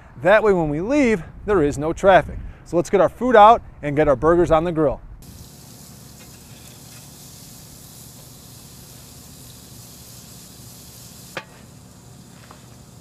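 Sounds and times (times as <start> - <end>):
patties sizzling on grill: 5.2 - 13.0
grill lid shutting: 11.2 - 12.9.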